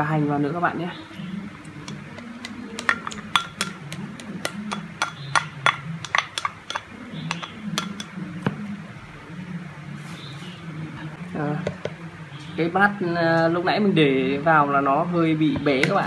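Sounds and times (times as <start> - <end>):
spatula clinking on ceramic bowl: 1.8 - 8.2.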